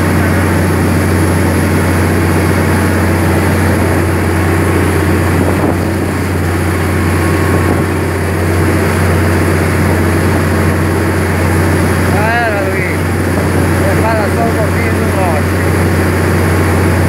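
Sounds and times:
diesel engine droning: 0.0s - 17.0s
water rushing past hull: 0.0s - 17.0s
wind rushing: 3.0s - 10.4s.

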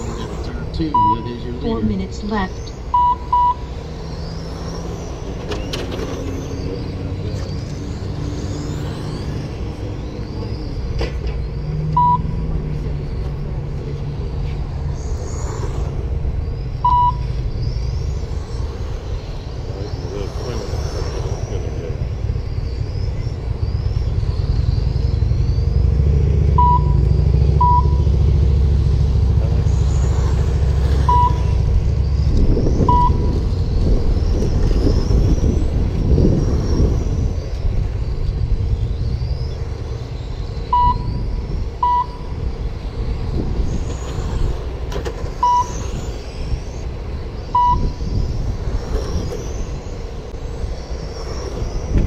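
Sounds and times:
low rumble: 0.0s - 52.0s
rc car motors whining: 0.0s - 52.0s
short beeps: 0.8s - 1.7s, 2.6s - 3.7s, 11.9s - 12.5s, 16.8s - 17.4s, 26.5s - 28.1s, 31.0s - 31.7s, 32.8s - 33.4s, 40.7s - 41.2s, 41.8s - 42.4s, 45.4s - 45.8s, 47.6s - 48.0s.

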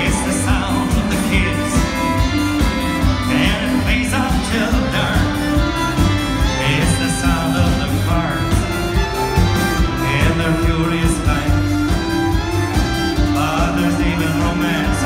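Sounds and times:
person singing: 0.0s - 9.2s, 9.8s - 15.0s
live band music: 0.0s - 15.0s.

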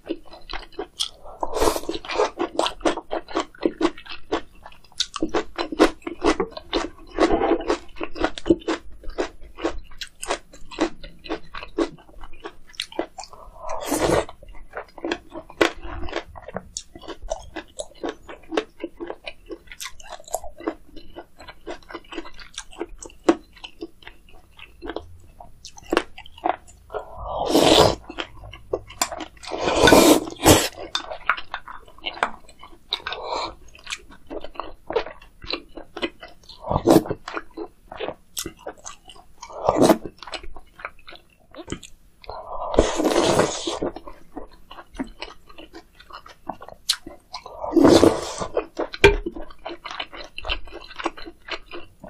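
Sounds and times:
wet chewing: 0.0s - 52.0s
slurping broth: 1.1s - 2.4s, 13.3s - 14.3s, 26.9s - 28.3s, 29.0s - 31.1s, 33.0s - 33.6s, 36.5s - 37.2s, 39.4s - 40.1s, 42.3s - 43.9s, 47.4s - 48.6s.

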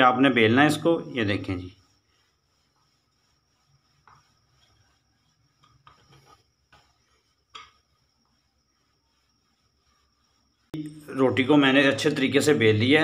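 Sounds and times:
rolling pin rubbing dough: 0.0s - 10.8s.

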